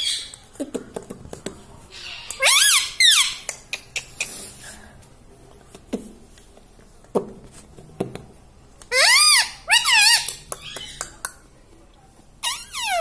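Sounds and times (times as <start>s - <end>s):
parakeet screeching calls: 2.0s - 3.5s, 8.9s - 11.0s.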